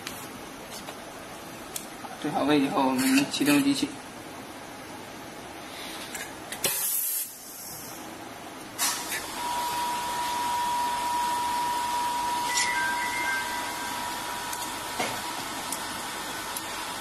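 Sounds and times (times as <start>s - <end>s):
compressed air hissing: 6.6s - 8.0s
steady machine tone: 9.2s - 17.0s.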